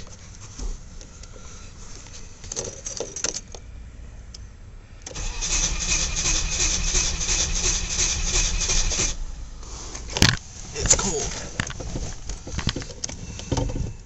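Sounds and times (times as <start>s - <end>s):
keys jingling: 2.4s - 3.6s
starter cranking engine: 5.1s - 9.3s.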